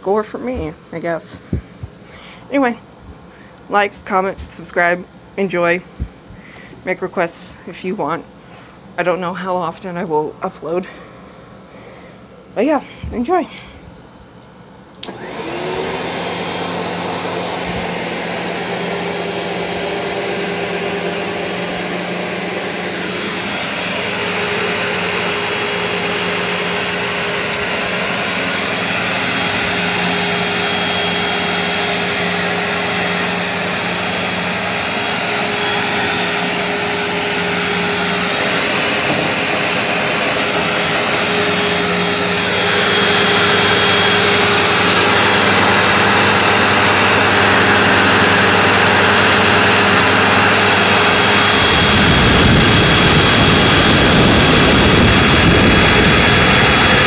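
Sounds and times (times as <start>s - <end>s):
vacuum cleaner motor running: 15.0s - 57.0s.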